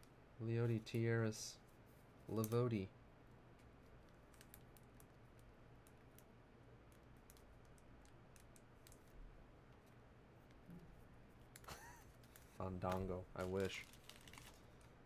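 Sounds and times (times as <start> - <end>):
light irregular clicks: 2.3 - 2.7.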